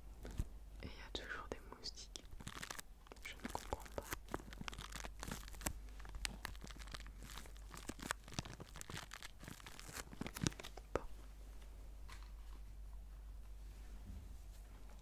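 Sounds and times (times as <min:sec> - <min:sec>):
plastic bag crinkling: 0:00.2 - 0:00.5, 0:02.2 - 0:11.0.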